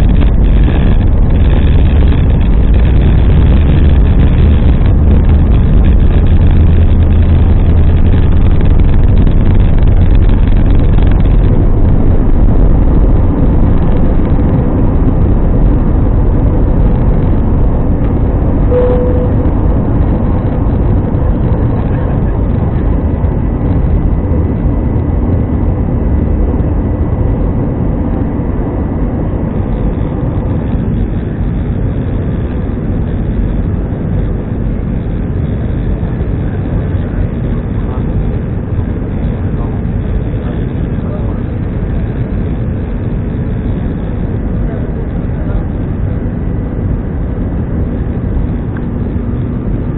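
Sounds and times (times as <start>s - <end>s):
aircraft engines and airflow: 0.0s - 49.9s
wheels rumbling on runway: 0.0s - 49.9s
short single tone: 18.6s - 19.7s.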